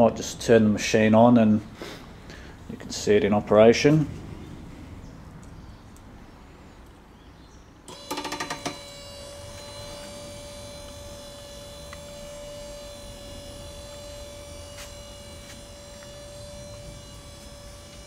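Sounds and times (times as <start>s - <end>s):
electric motor whine: 7.9s - 18.0s.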